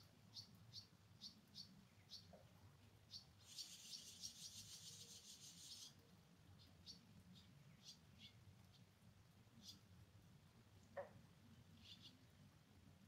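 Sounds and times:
small bird chirping: 0.0 - 9.9, 11.7 - 12.4.

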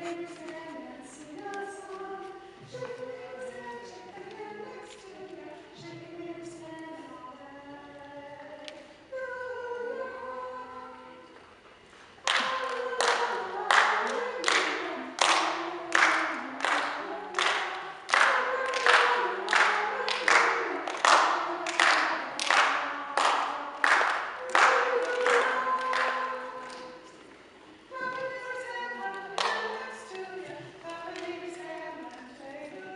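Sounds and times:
children's choir singing: 0.0 - 32.9
hand claps on the beat: 12.2 - 26.9, 29.4 - 29.7.

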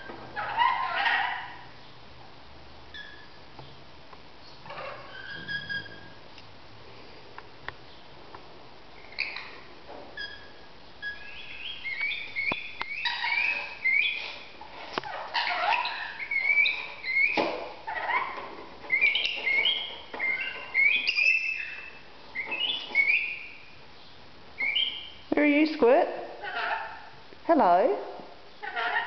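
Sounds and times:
parrots chattering shrilly: 0.4 - 1.7, 10.2 - 23.6, 24.6 - 25.1, 26.4 - 27.2, 28.6 - 29.0.

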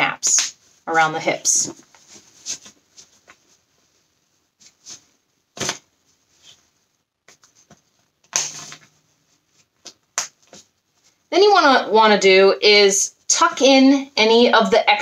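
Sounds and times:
fabric rustling: 0.6 - 11.3.

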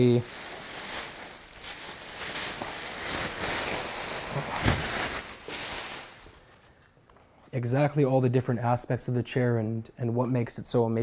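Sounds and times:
plastic wrap crinkling: 0.0 - 6.9.

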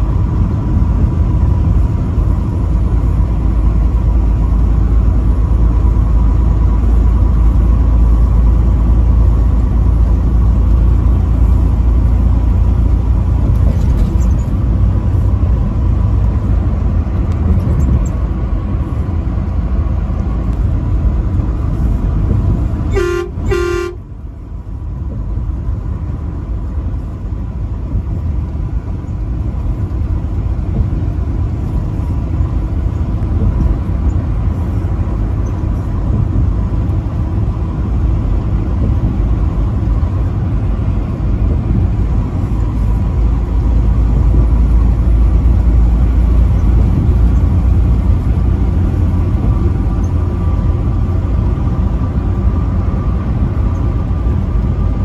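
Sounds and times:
truck engine rumble: 0.0 - 55.0
truck horn blasts: 22.8 - 24.1.

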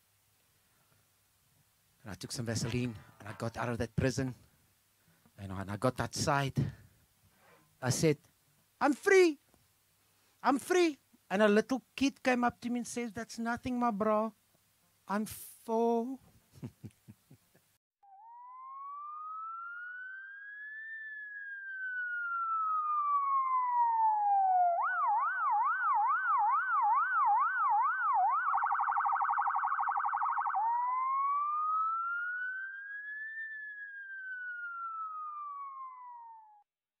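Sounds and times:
electronic police siren: 18.0 - 36.7.

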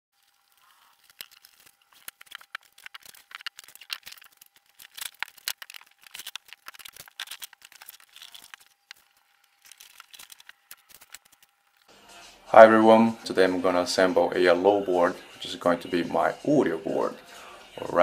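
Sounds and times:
packaging rustling and crinkling: 0.2 - 11.7.

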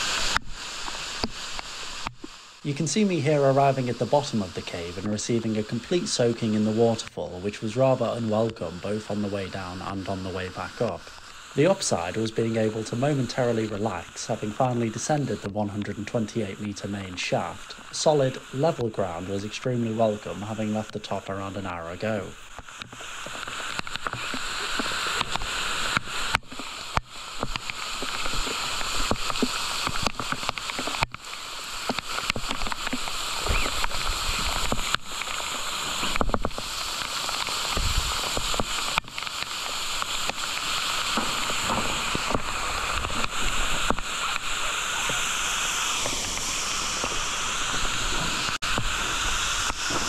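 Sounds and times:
water rushing down: 0.0 - 50.0.

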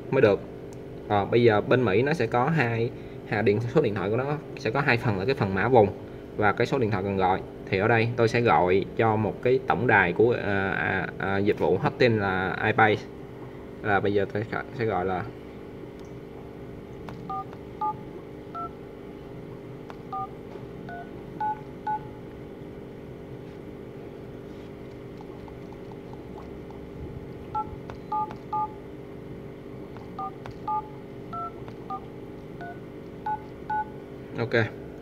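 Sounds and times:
phone dialer touch-tone beeps: 17.3 - 18.0, 20.1 - 20.3, 20.9 - 22.1, 27.6 - 28.8, 30.2 - 32.0, 32.6 - 33.9.

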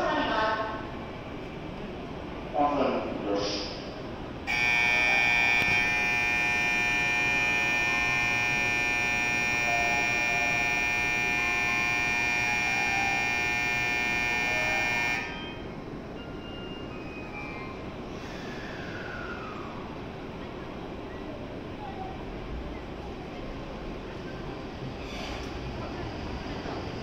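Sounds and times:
electronic departure bell ringing: 4.5 - 16.9.

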